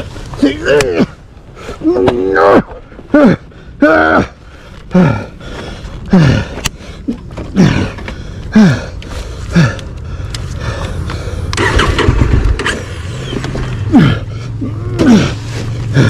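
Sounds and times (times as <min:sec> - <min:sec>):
motorcycle engine revving: 0:11.5 - 0:16.0.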